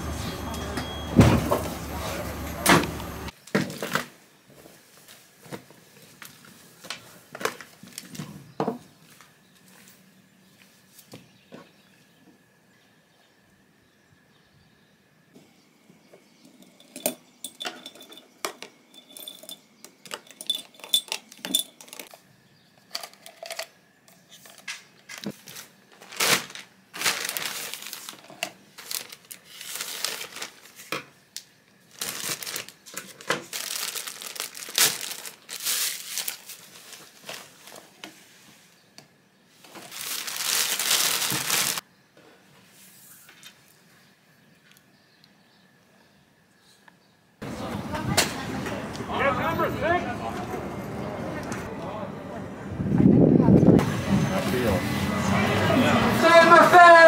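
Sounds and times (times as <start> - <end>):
pens clinking against glass jar: 16.6 - 22.2
plastic bag crinkling: 25.3 - 30.9, 31.8 - 37.8, 39.7 - 41.8.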